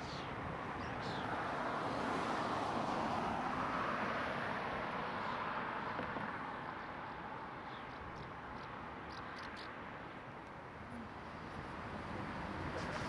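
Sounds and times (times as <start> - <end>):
car passing: 0.1 - 7.8, 10.9 - 13.0.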